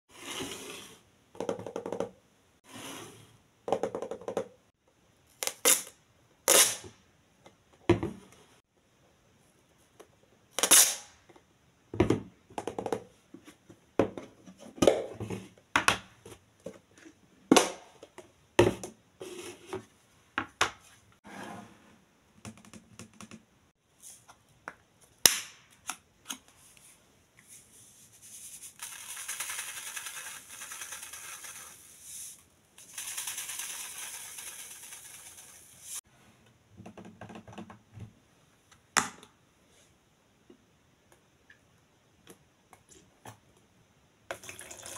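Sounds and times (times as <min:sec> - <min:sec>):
grains pouring from a shaker: 0:28.8 - 0:36.0.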